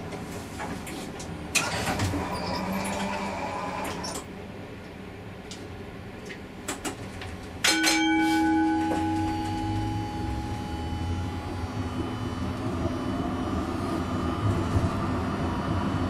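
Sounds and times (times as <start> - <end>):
tram wheels on rail: 6.7 - 16.0
multi-pitched tram whine: 7.6 - 16.0.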